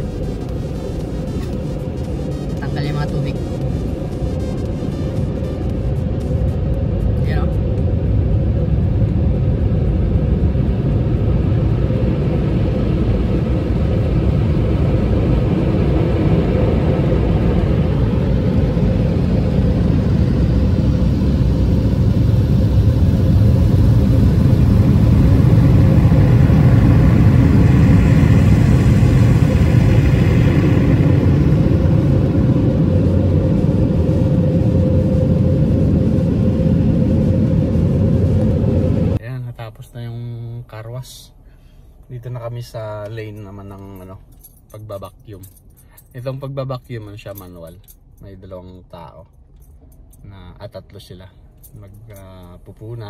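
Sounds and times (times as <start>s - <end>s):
car wash machinery rumbling: 0.0s - 40.6s.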